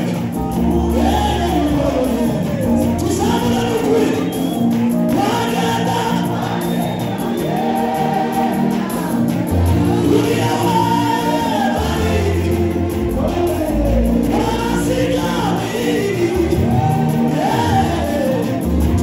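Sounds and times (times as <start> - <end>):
gospel choir singing: 0.0 - 19.0
instrumental backing: 0.0 - 19.0
deep bass notes: 11.8 - 19.0.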